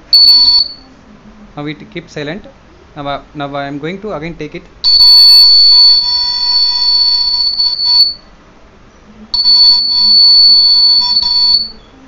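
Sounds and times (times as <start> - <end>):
high-pitched alarm buzzer: 0.1 - 0.8, 4.8 - 8.2, 9.4 - 11.8.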